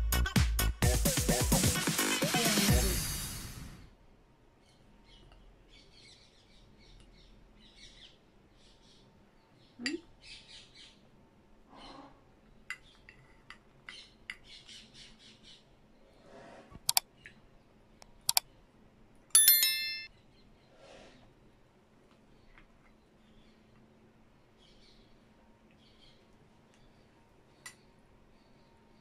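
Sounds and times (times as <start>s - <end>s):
glass ringing: 19.4s - 20.1s
spoon clinking in glass cup: 19.4s - 20.1s.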